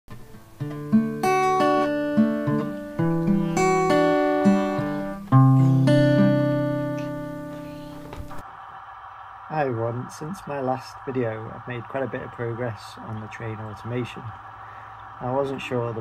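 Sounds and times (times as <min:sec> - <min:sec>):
acoustic guitar picking melody: 0:00.1 - 0:08.4.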